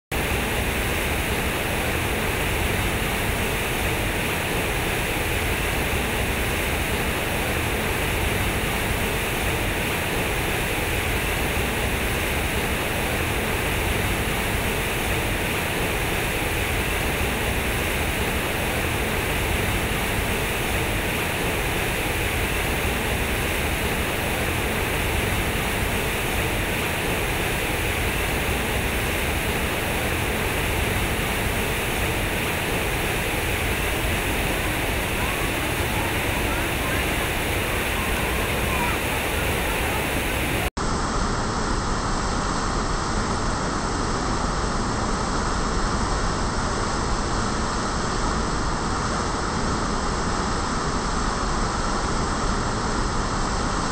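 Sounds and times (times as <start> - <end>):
fountain water splashing into pool: 17.0 - 40.7.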